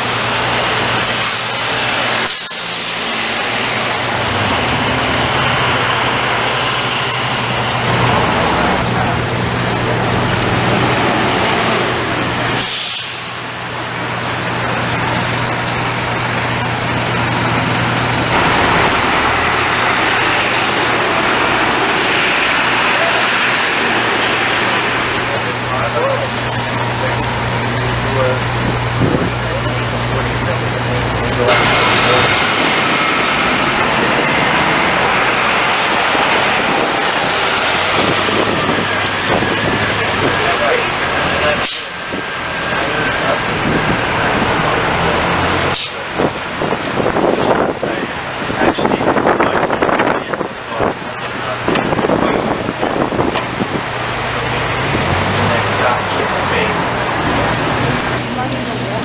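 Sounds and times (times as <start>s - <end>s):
bus engine running: 0.0s - 59.0s
city street traffic: 0.0s - 59.0s
tyres on the road: 0.0s - 59.0s
air brakes hissing: 1.0s - 1.6s, 2.2s - 3.1s, 12.5s - 13.5s, 41.6s - 42.0s.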